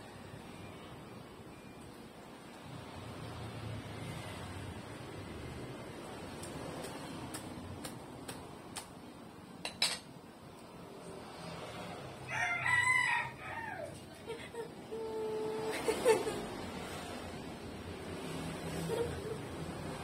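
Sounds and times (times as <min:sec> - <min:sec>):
rooster crowing: 0:12.2 - 0:14.2.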